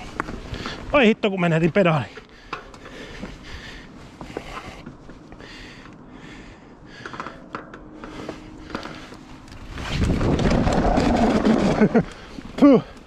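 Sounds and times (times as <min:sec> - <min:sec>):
bike clicks and rattles: 0:02.0 - 0:06.0, 0:06.8 - 0:13.0.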